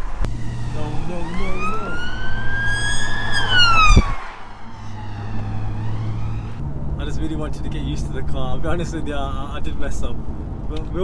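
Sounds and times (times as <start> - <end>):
emergency siren wailing: 0.0 - 6.6
car engine humming: 0.0 - 11.0.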